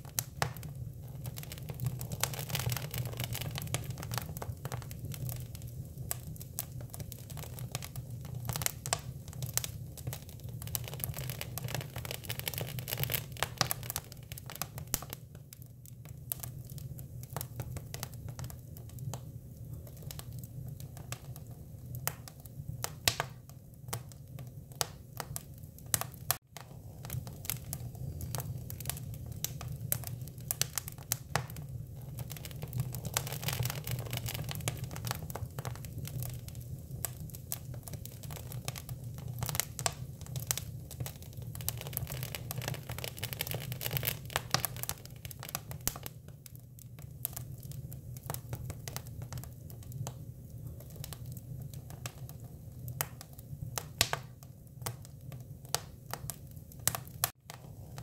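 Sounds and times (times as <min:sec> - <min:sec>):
wood fire crackling and popping: 0:00.0 - 0:58.0.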